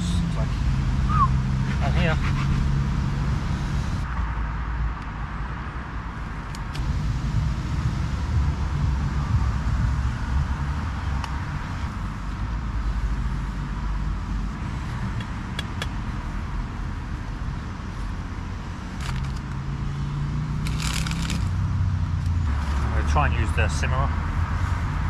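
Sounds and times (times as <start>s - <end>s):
road traffic rumble: 0.0s - 25.0s
crisp packet rustling: 20.6s - 21.5s
utensils clicking: 20.6s - 21.5s.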